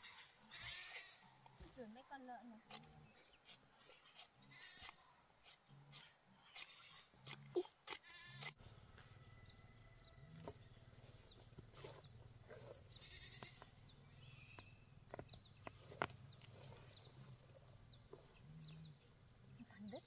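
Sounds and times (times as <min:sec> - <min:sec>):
faint bird chirps: 0:12.9 - 0:20.0.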